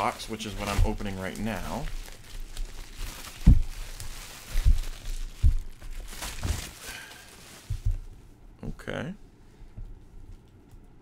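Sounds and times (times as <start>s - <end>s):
bubble wrap crinkling: 0.0s - 8.4s.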